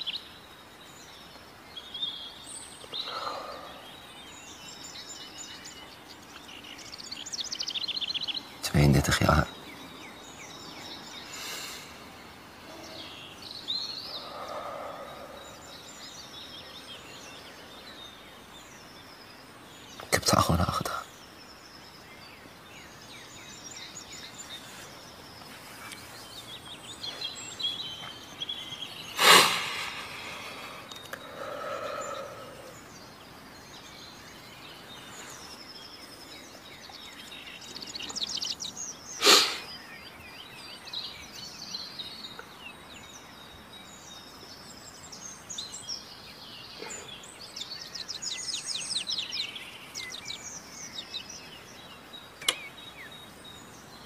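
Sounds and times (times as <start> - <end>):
birds chirping: 0.0 - 54.0.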